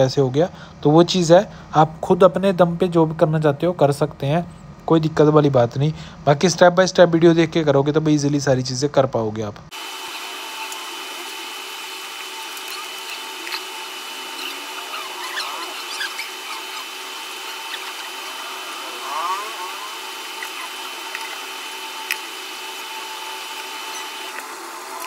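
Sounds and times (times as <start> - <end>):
steady machine hum: 9.5 - 25.0
thin high whine: 9.7 - 25.0.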